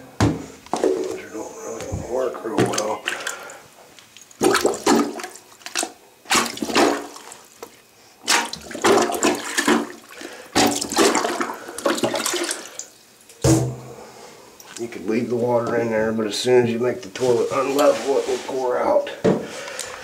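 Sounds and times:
toilet water gurgling down drain: 0:08.3 - 0:12.8.

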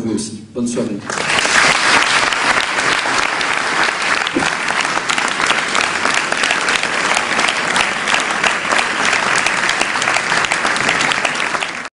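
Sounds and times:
audience applauding: 0:01.0 - 0:11.9.

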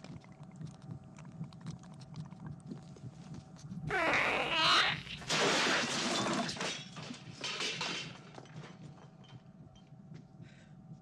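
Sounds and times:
tableware crashing and breaking: 0:05.2 - 0:08.4
small knocks and rattles: 0:05.2 - 0:10.3.

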